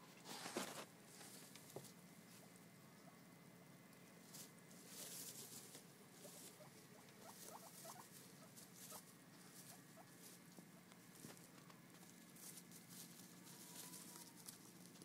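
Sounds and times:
rustling in hay: 0:00.2 - 0:02.5, 0:04.2 - 0:15.0
guinea pig squeaks: 0:06.2 - 0:10.4.

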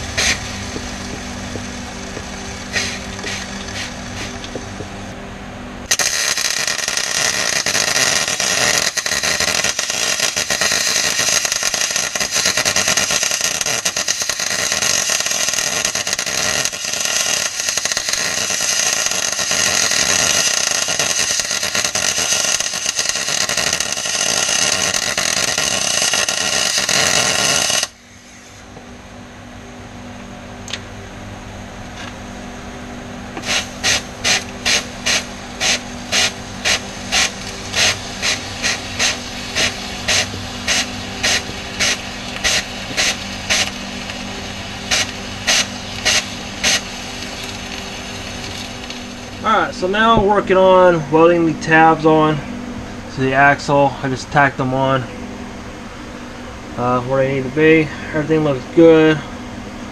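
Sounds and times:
welder arc crackling: 0:00.0 - 0:05.2, 0:05.8 - 0:28.0, 0:33.3 - 0:52.3
low hum: 0:00.0 - 0:12.3, 0:17.4 - 0:59.9
short rasping strokes: 0:02.7 - 0:04.4.

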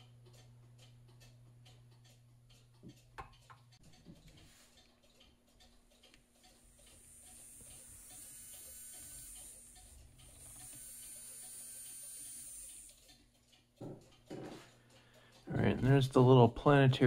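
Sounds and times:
small electric motor whine: 0:06.7 - 0:13.0.

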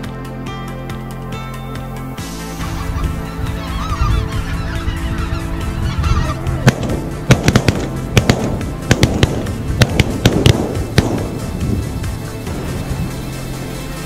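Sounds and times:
geese honking: 0:02.2 - 0:11.3
shotgun shots: 0:06.7 - 0:11.5.

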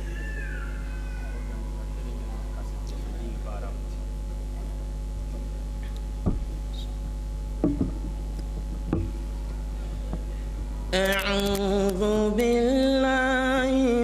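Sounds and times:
steady low hum: 0:00.0 - 0:14.0
short sharp knocks: 0:07.6 - 0:09.2.

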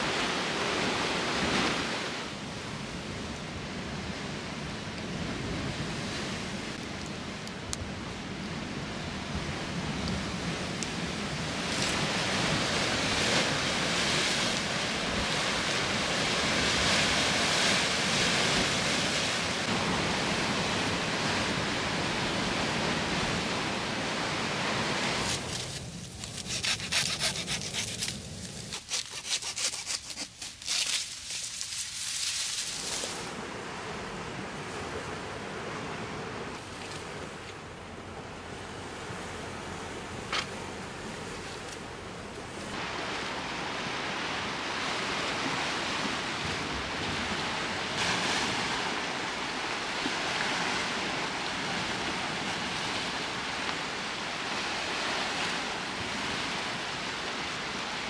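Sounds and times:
dry crackles and rustles: 0:25.2 - 0:33.3.

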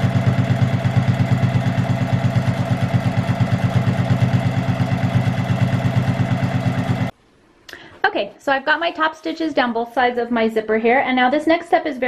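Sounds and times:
sewing machine running: 0:00.0 - 0:07.1.

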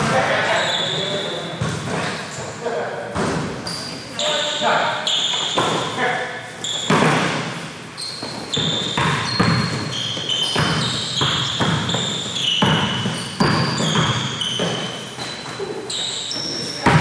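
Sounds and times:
sneaker squeaks: 0:00.0 - 0:17.0
basketball dribbling on gym floor: 0:00.9 - 0:02.2, 0:08.1 - 0:15.4, 0:16.3 - 0:17.0.

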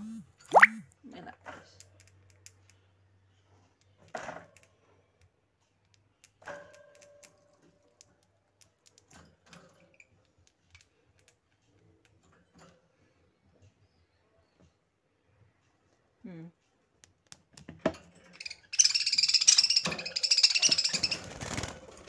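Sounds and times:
bird beaks and claws clicking: 0:05.8 - 0:09.3, 0:10.2 - 0:12.2.

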